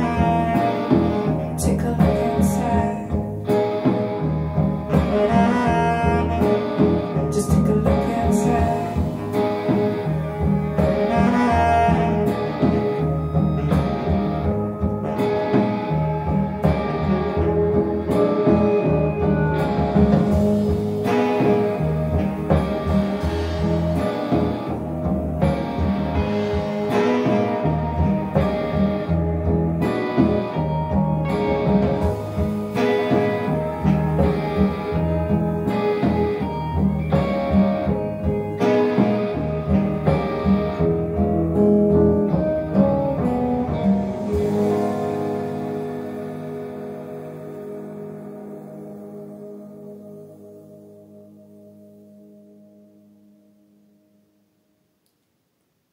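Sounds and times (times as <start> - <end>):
instrumental music over loudspeakers: 0.0 - 54.5
bass guitar notes: 0.0 - 55.1
guitar: 0.0 - 55.5.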